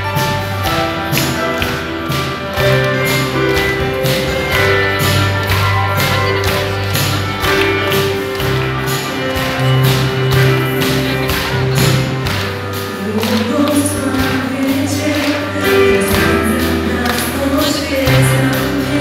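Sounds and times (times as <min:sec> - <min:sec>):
drums steady beat: 0:00.0 - 0:19.0
worship band playing: 0:00.0 - 0:19.0.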